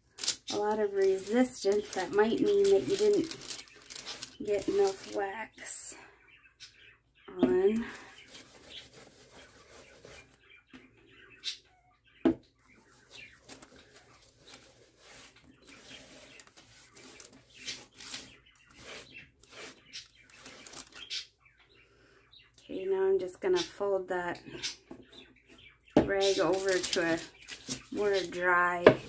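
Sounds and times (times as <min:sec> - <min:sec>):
cloth rag rubbing on paper: 0:08.2 - 0:10.4, 0:13.0 - 0:20.8.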